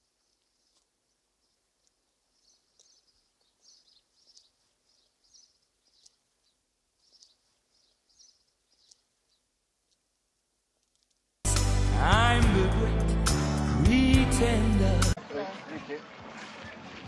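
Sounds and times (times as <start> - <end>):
faint bird chirps: 0.0 - 9.6.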